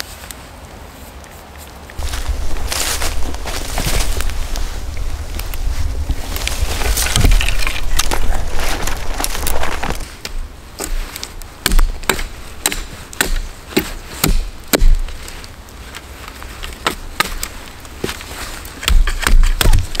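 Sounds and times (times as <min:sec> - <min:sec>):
rustling in undergrowth: 0:00.0 - 0:20.0
hatchet chopping wood: 0:11.6 - 0:15.2, 0:16.8 - 0:17.5, 0:18.8 - 0:20.0.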